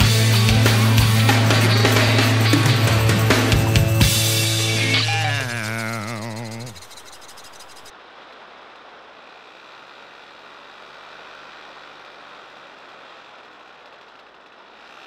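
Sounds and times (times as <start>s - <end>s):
music: 0.0s - 6.2s
aircraft air and motor rushing: 0.0s - 9.8s.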